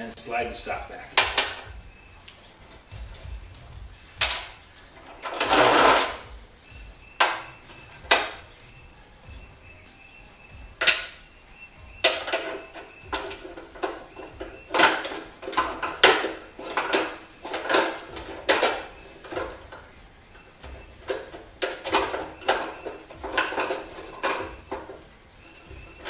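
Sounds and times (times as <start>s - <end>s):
wrench clanking on metal: 12.0s - 26.0s.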